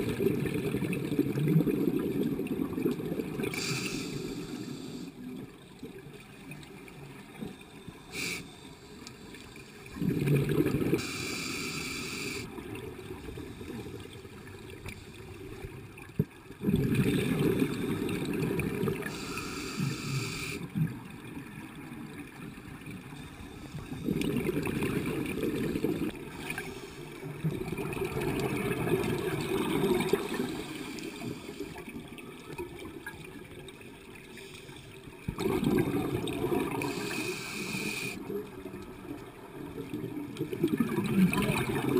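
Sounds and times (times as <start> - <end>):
bubbling gurgle of exhaled air: 0.0 - 5.9, 9.8 - 21.3, 22.5 - 33.8, 35.2 - 41.9
scuba regulator inhale hiss: 3.5 - 5.2, 8.0 - 10.0, 11.0 - 12.5, 19.0 - 20.6, 26.3 - 27.2, 30.3 - 31.8, 36.7 - 38.3.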